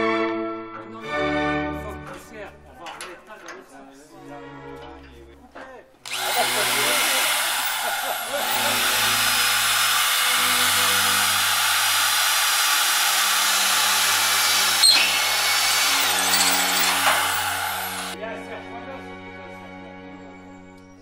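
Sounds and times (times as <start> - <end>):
power tool cutting sheet steel: 6.1 - 18.2.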